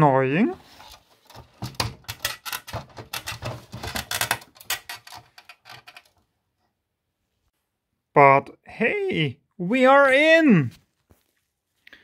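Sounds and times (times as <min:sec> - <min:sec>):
clicking and rattling of enclosure: 0:00.7 - 0:06.3.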